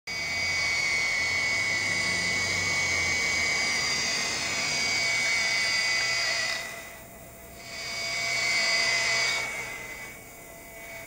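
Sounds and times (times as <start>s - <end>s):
rotors buzzing: 0.1s - 7.2s
model helicopter motor whine: 0.1s - 11.0s.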